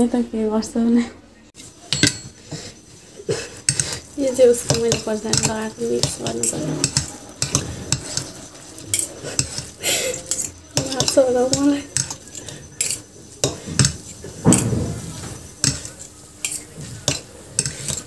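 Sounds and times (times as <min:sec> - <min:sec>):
utensil scraping a bowl: 0:01.6 - 0:18.0.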